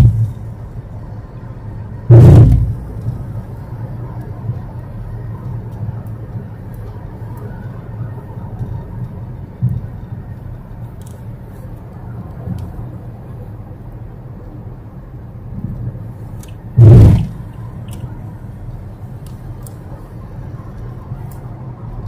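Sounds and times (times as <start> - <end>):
road and engine rumble in car cabin: 0.0 - 22.0
loud thump: 2.1 - 2.9, 16.8 - 17.5.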